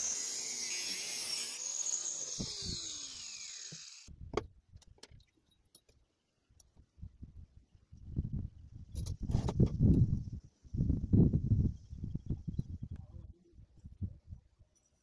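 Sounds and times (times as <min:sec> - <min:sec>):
angle grinder whining: 0:00.0 - 0:04.1.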